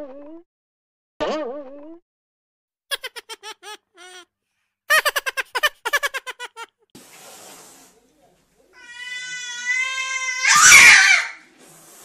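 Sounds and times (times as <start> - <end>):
high-pitched giggling laughter: 2.9 - 4.2, 4.9 - 6.8
steady hiss: 7.0 - 8.2, 11.5 - 12.0.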